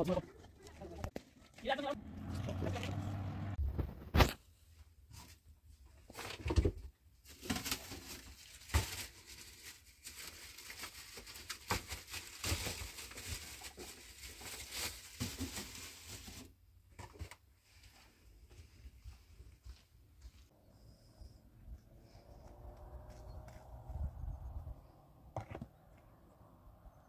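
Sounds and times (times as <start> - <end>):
plastic and cloth rustling: 7.2 - 16.6.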